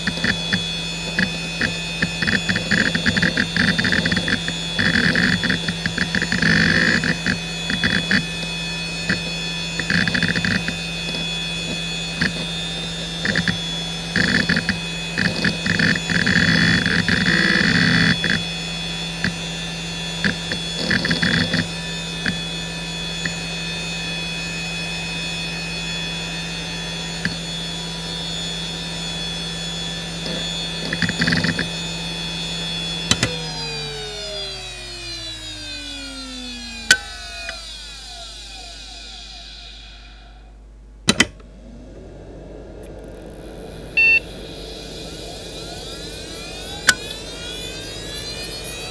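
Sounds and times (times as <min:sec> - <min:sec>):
hard drive head seeks chattering: 0:00.0 - 0:22.5, 0:43.7 - 0:48.9
hard drive whining: 0:00.0 - 0:48.9
power switch click: 0:33.1 - 0:33.5, 0:41.1 - 0:41.5.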